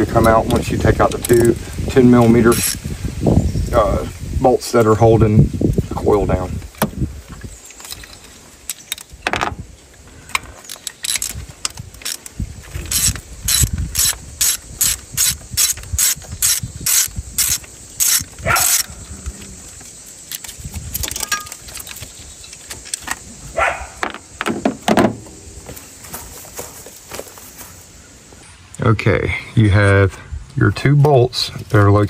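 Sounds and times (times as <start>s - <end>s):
ratchet wrench clicking: 10.6s - 18.9s
metal clinks and knocks: 20.3s - 23.2s.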